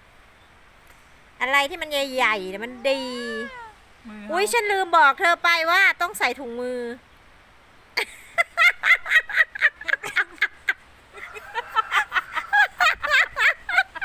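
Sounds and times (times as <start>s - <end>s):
woman laughing hard: 8.0s - 14.0s.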